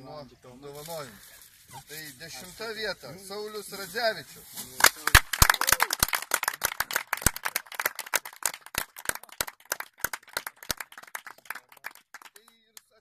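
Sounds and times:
people clapping: 4.7s - 13.0s.

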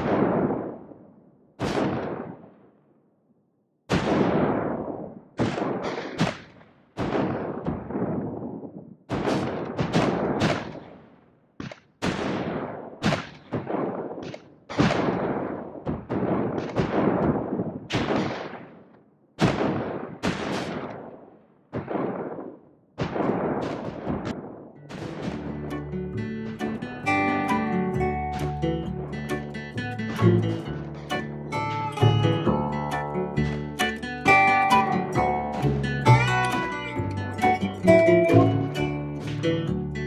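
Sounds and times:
cannon-like blasts: 0.0s - 2.8s, 3.9s - 11.2s, 12.0s - 27.2s
gunfire: 0.0s - 3.0s, 3.9s - 27.5s.

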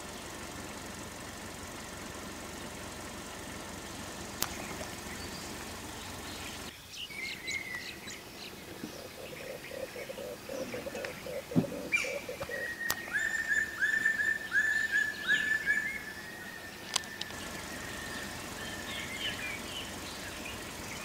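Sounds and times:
birds chirping and calling: 0.0s - 21.0s
fast pulsing call: 7.9s - 21.0s.

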